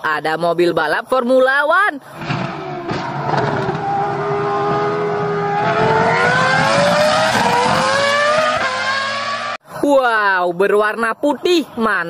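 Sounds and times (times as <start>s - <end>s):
racing car engine at high revs: 2.1s - 9.6s.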